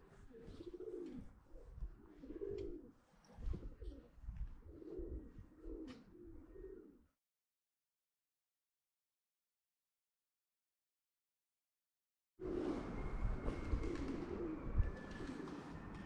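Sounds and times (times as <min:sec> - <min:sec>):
pigeons cooing: 0:00.0 - 0:07.1, 0:12.4 - 0:16.0.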